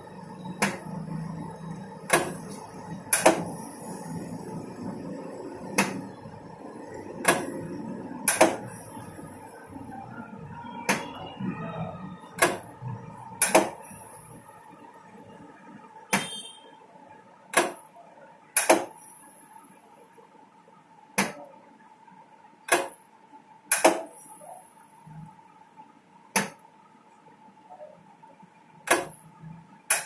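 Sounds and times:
faint steady hum: 0.0s - 30.0s
sharp mechanical clicks: 23.7s - 24.1s.

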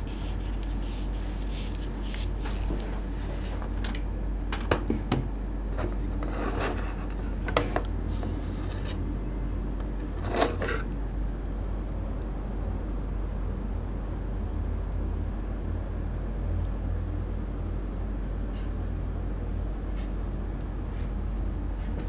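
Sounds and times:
low background rumble: 0.0s - 22.0s.

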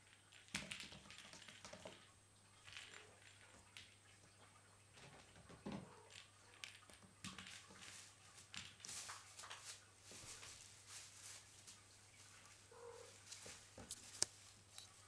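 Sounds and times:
kittens scampering on hard floor: 4.9s - 15.0s
rustling of plastic bag: 7.5s - 15.0s.

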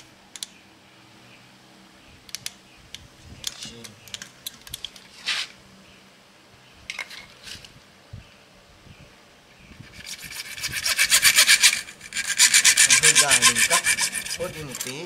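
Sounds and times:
sharp click: 0.3s - 0.6s
hand tool cutting plastic pipe: 10.8s - 15.0s.

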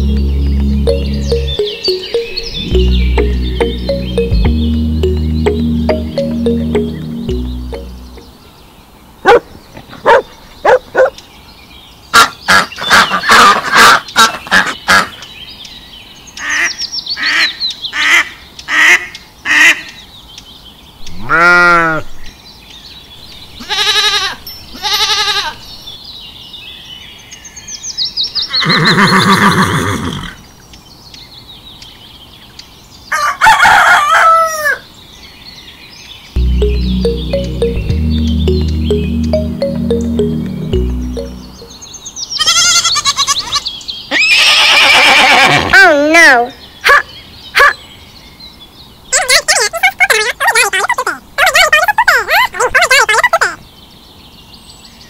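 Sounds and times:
rooster crowing: 33.1s - 34.8s.

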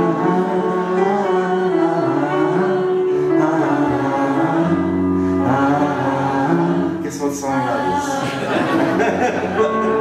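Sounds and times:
piano playing: 0.0s - 10.0s
wordless singing: 0.0s - 10.0s.

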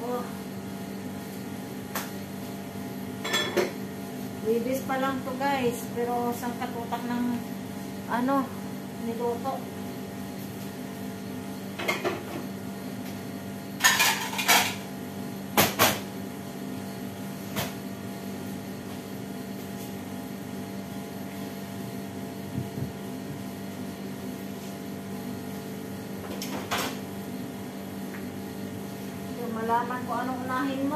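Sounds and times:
plates clinking and clattering: 13.8s - 14.8s
steady low hum: 16.3s - 30.9s.

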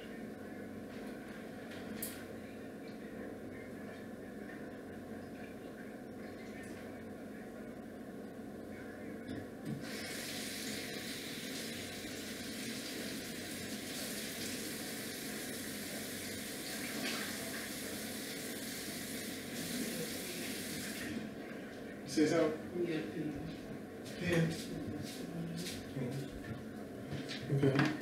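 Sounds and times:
water running: 9.7s - 21.2s.

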